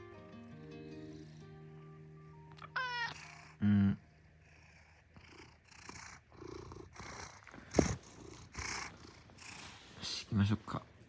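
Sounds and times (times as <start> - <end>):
cat purring: 0.6 - 10.9
cat meowing: 2.6 - 3.5.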